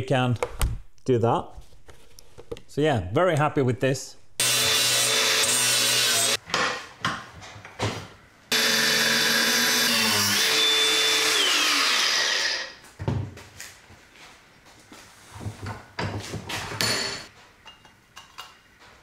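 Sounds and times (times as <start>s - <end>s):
angle grinder cutting steel: 4.4s - 6.4s, 8.5s - 12.8s.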